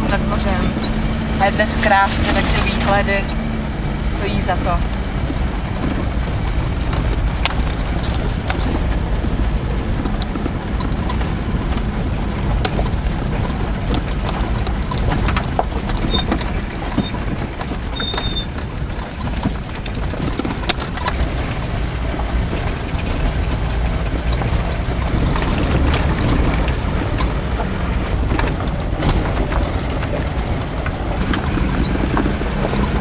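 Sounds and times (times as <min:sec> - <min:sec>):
engine and tyre rumble: 0:00.0 - 0:33.0
knocks and rattles over stones: 0:00.0 - 0:33.0
short squeaks: 0:00.6 - 0:01.4, 0:04.9 - 0:09.0, 0:16.0 - 0:21.2.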